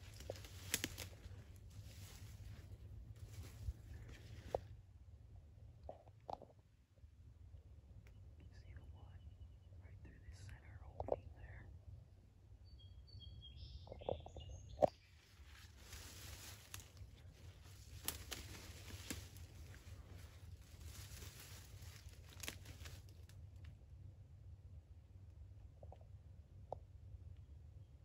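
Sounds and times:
leaves and brush rustling: 0:00.0 - 0:04.7, 0:15.0 - 0:23.7
small twig snaps: 0:00.1 - 0:02.2, 0:15.8 - 0:17.0, 0:17.6 - 0:23.7.

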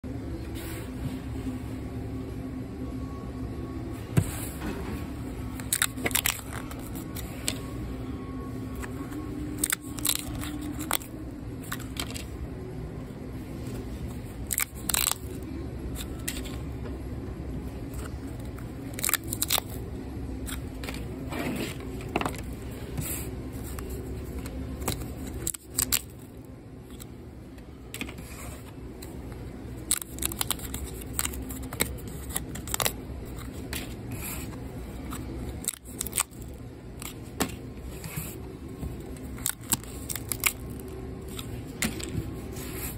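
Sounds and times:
low background hum: 0:00.0 - 0:42.9
paper tickets torn open: 0:05.5 - 0:07.7, 0:08.8 - 0:12.3, 0:14.4 - 0:16.6, 0:17.9 - 0:21.2, 0:23.7 - 0:26.3, 0:29.8 - 0:34.0, 0:35.0 - 0:37.2, 0:39.2 - 0:42.1.

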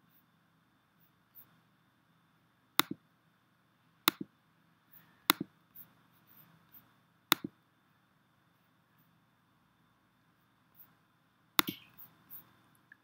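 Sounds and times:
faint hum: 0:00.0 - 0:13.0
computer mouse clicks: 0:02.8 - 0:03.0, 0:04.1 - 0:04.3, 0:04.9 - 0:07.5, 0:11.6 - 0:12.5.

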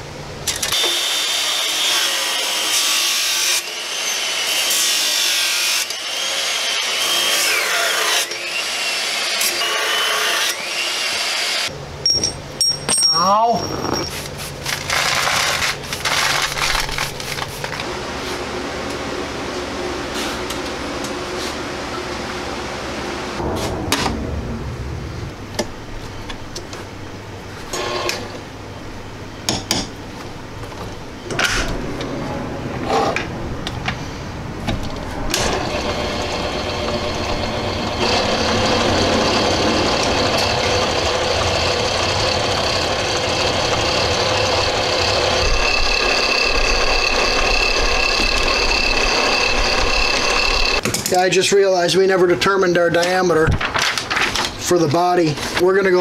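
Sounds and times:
metal tooling clinks and knocks: 0:12.0 - 0:14.2
brush sweeping concrete floor: 0:14.0 - 0:14.8, 0:17.0 - 0:18.4, 0:20.1 - 0:20.5, 0:21.3 - 0:21.7
lathe motor running: 0:35.3 - 0:50.8.

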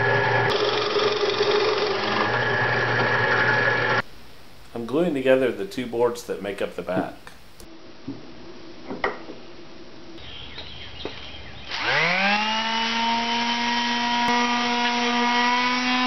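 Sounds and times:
electric sander motor whine: 0:00.0 - 0:04.0, 0:11.1 - 0:16.0.

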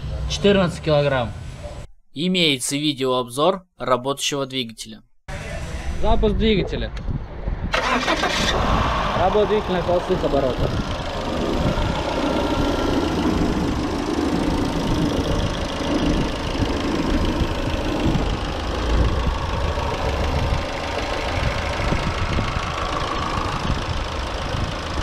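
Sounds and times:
car engine idling: 0:08.0 - 0:25.0.

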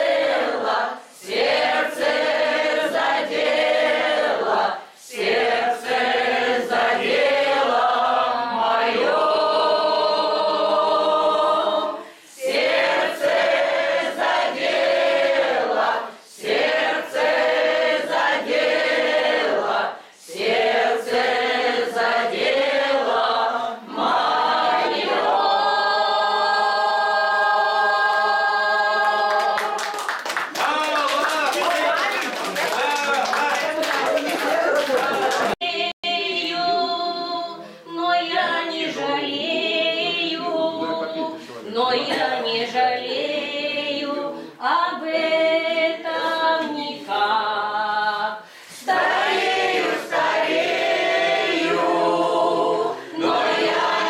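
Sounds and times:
mixed choir singing: 0:00.0 - 0:30.2, 0:32.8 - 0:54.0
people clapping: 0:28.0 - 0:35.7.

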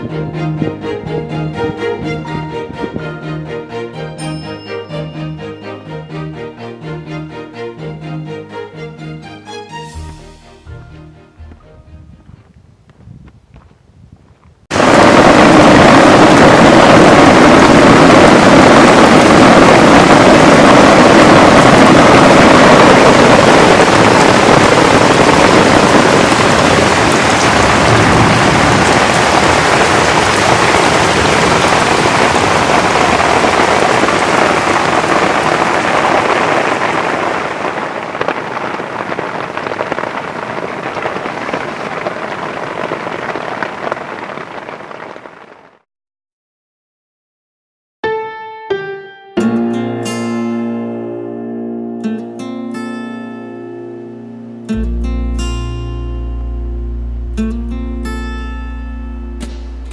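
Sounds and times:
heavy rain on tent fabric: 0:14.6 - 0:45.8, 0:59.2 - 0:59.9.

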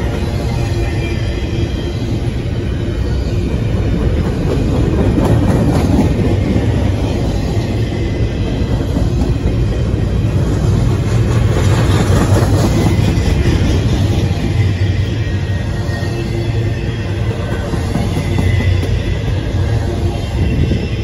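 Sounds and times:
train wheels rumbling and clattering: 0:00.0 - 0:21.0.

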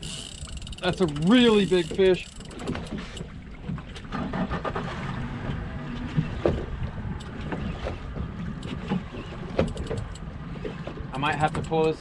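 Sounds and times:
outboard motor idling: 0:00.0 - 0:11.0
sharp clicks and knocks: 0:05.5 - 0:12.0.

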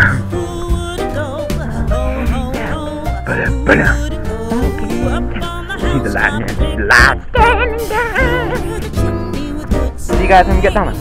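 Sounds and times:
song with bass and drum beat: 0:00.0 - 0:11.0.

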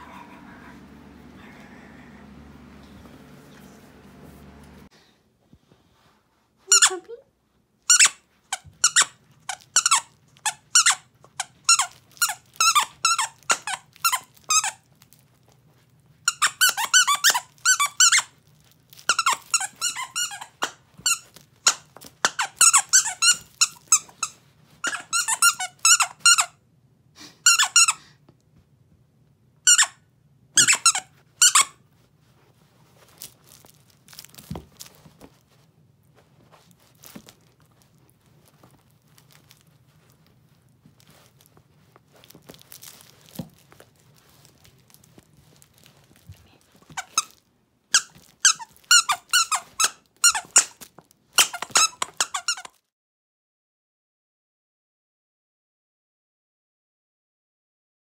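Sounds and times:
squeaky toy squeaking: 0:06.7 - 0:07.1, 0:07.9 - 0:14.8, 0:16.3 - 0:18.4, 0:19.1 - 0:26.6, 0:27.4 - 0:28.0, 0:29.7 - 0:30.0, 0:30.6 - 0:31.8, 0:46.9 - 0:52.8.

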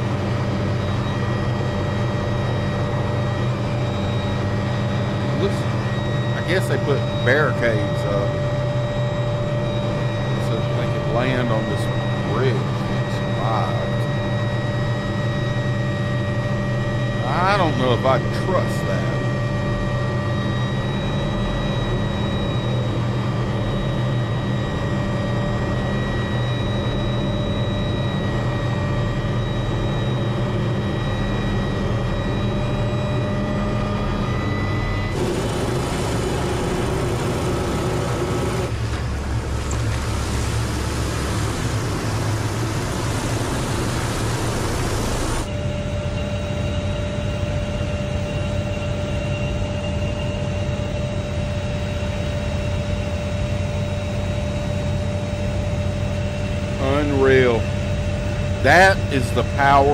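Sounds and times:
helicopter turbine whine: 0:00.0 - 0:59.9
helicopter rotor thrum: 0:35.1 - 0:45.5.

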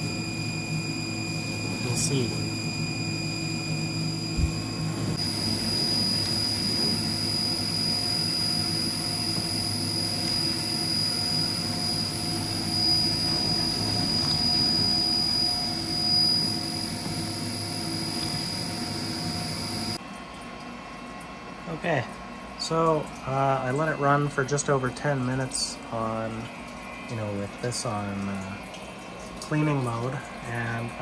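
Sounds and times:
high machine whine: 0:00.0 - 0:20.0.

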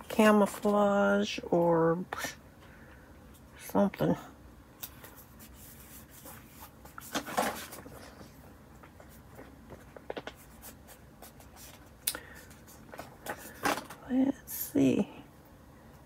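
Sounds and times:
paper rustling and crinkling: 0:05.0 - 0:14.0.

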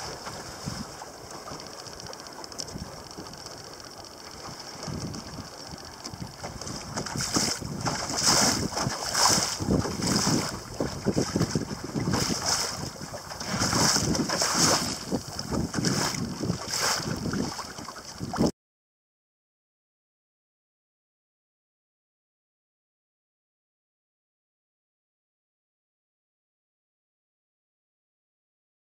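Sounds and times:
water splashing against hull: 0:00.0 - 0:18.5
wind buffeting microphone: 0:00.0 - 0:18.5.

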